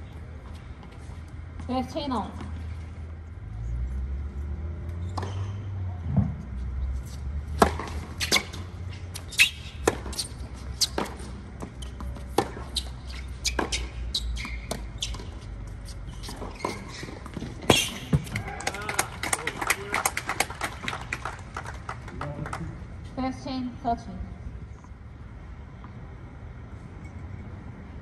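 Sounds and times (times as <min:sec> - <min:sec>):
tennis ball strikes and bounces: 0:04.8 - 0:18.9.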